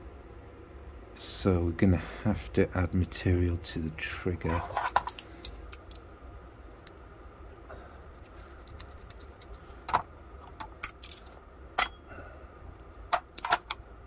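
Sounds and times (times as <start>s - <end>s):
metal tools clicking on lock parts: 4.5s - 6.1s, 10.4s - 12.0s, 13.1s - 13.8s.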